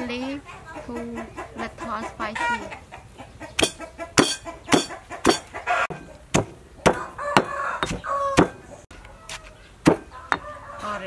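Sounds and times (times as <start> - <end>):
stone pestle pounding in mortar: 3.6 - 8.6, 9.8 - 10.4.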